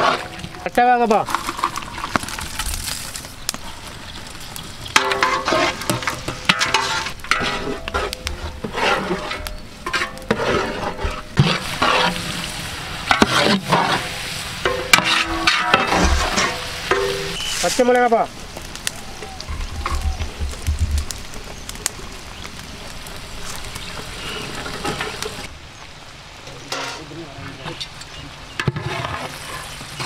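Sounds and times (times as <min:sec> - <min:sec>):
ladles scraping cooking pots: 0:00.0 - 0:02.4, 0:04.9 - 0:17.8, 0:24.2 - 0:25.5, 0:26.5 - 0:27.9, 0:28.5 - 0:30.0
onions sizzling: 0:00.0 - 0:25.6, 0:26.6 - 0:30.0.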